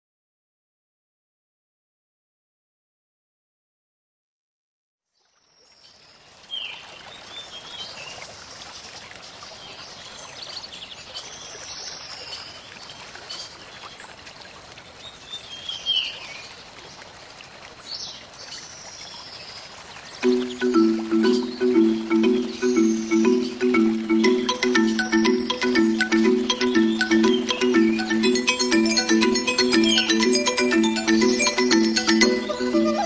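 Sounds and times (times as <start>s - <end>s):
running water: 5.5s - 33.0s
birds chirping: 20.2s - 33.0s.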